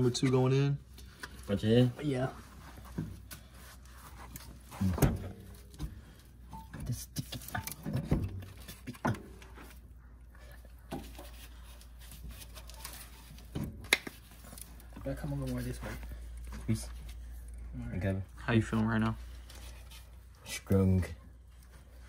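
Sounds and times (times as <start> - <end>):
metal parts knocking and clunking: 4.8 - 9.7.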